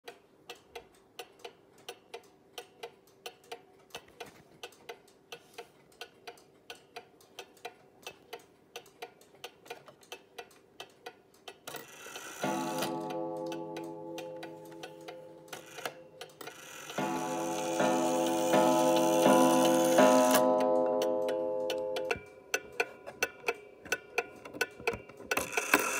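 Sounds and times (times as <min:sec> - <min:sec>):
clock ticking: 0:00.0 - 0:25.9
clock gong strike ringing: 0:12.4 - 0:16.2, 0:17.0 - 0:22.3.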